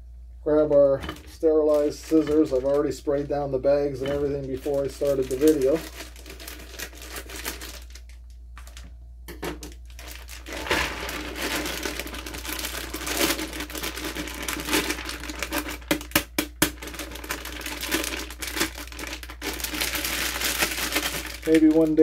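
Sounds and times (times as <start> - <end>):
plastic grow bag crinkling: 0.6 - 22.0
grain pouring into plastic tub: 9.9 - 16.0, 16.8 - 22.0.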